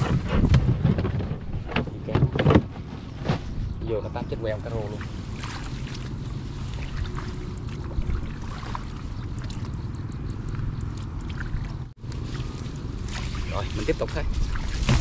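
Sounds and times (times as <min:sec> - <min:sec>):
wind rumbling on microphone: 0:00.0 - 0:15.0
grass rustling: 0:11.0 - 0:15.0.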